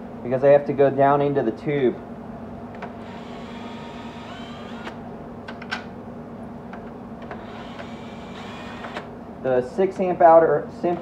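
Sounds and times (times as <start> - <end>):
cordless drill running: 3.0 - 5.0, 7.3 - 9.1.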